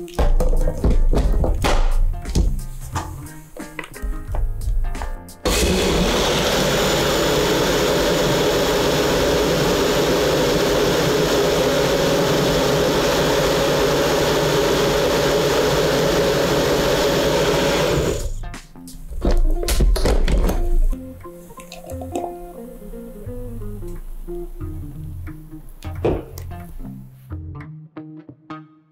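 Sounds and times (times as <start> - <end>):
blender motor running: 5.4 - 18.4.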